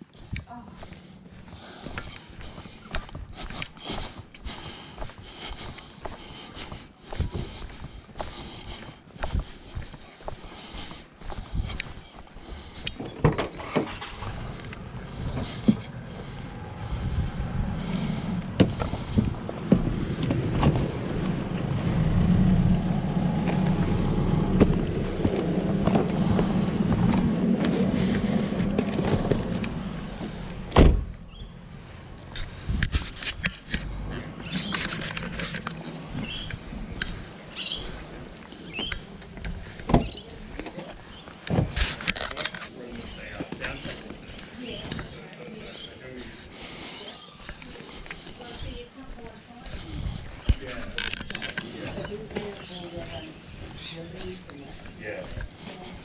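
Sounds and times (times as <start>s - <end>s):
motor vehicle droning: 12.5s - 48.9s.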